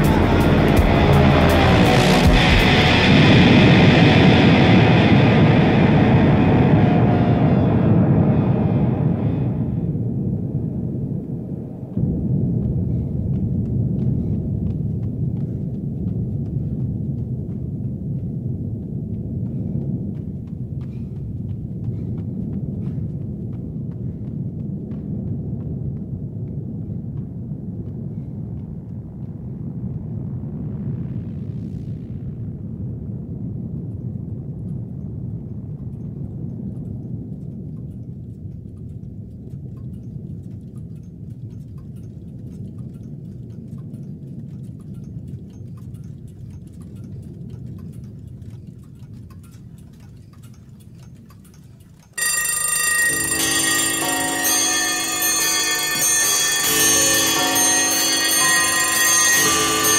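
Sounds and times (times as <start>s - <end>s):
loud music with bell-like tones: 0.0s - 3.0s, 53.3s - 59.9s
faint ticks: 33.9s - 52.8s.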